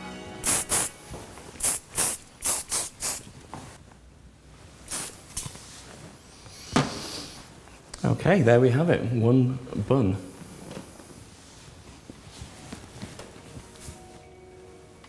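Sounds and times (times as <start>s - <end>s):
aerosol spray hissing: 0.4s - 3.3s, 4.9s - 5.4s, 6.3s - 7.5s.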